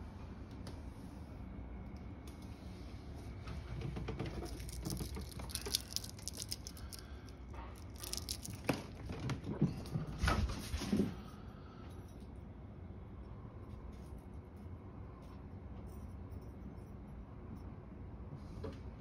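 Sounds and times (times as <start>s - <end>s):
candy wrapper crinkling: 4.4s - 9.0s.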